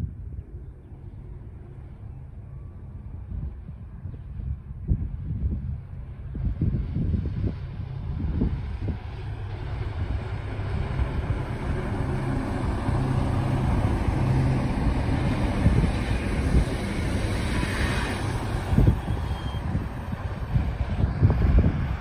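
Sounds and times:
railcar rumbling on track: 0:00.0 - 0:22.0
passenger train rushing past: 0:05.9 - 0:22.0.

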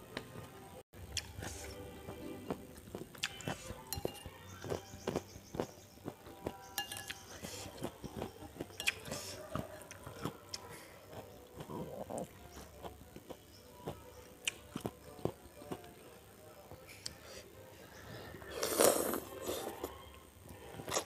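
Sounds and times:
wet chewing: 0:01.1 - 0:15.9
metal spoon clinking on bowl: 0:03.9 - 0:04.4, 0:06.8 - 0:07.3.

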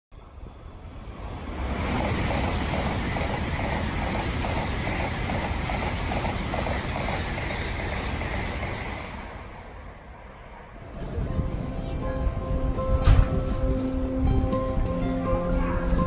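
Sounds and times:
bullet train passing: 0:00.1 - 0:16.0
rhythmic beat of train wheels: 0:01.3 - 0:09.7.

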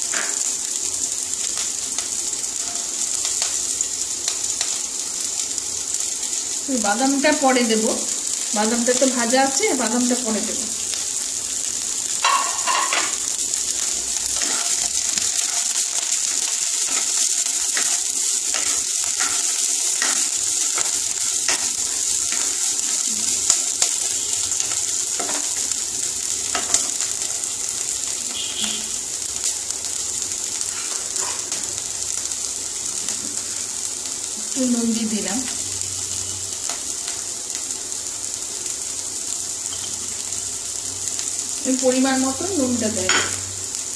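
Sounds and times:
vegetables sizzling in oil: 0:00.0 - 0:43.9
wooden spatula scraping a pan: 0:30.6 - 0:31.6.

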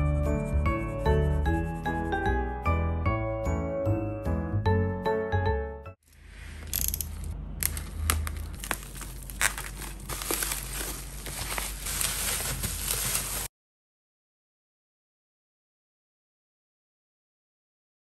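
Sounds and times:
bubble wrap crinkling: 0:06.7 - 0:13.5.

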